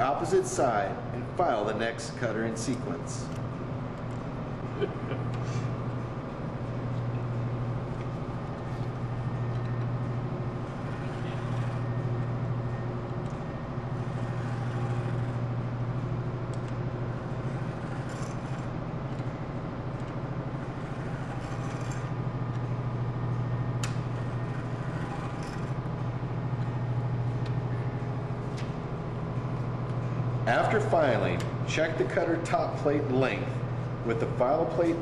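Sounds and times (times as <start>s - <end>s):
steady low hum: 0.0s - 35.0s
file rasping on saw chain: 14.0s - 15.4s.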